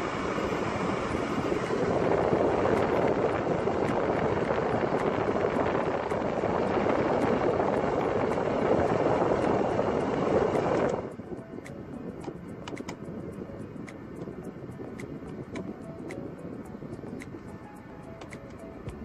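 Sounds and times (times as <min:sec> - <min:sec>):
car blower fan rushing air: 0:00.0 - 0:19.0.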